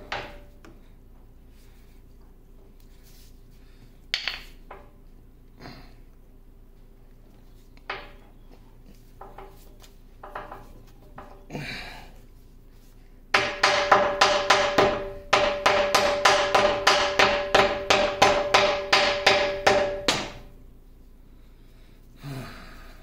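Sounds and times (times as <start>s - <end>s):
mallet striking metal: 13.4s - 20.5s.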